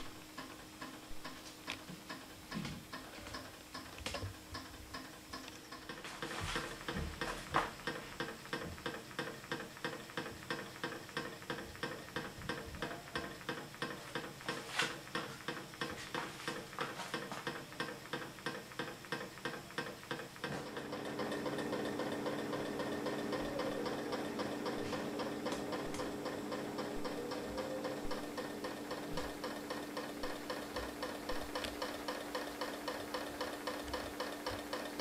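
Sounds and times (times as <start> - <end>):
steady hum: 0.0 - 35.0
stirling engine ticking: 17.8 - 35.0.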